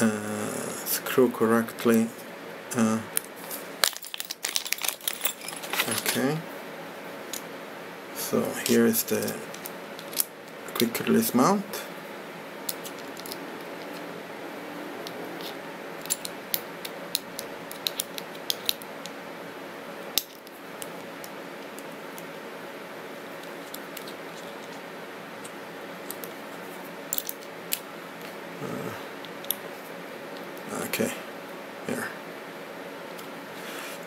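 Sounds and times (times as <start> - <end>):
steady background hum: 0.0 - 34.0.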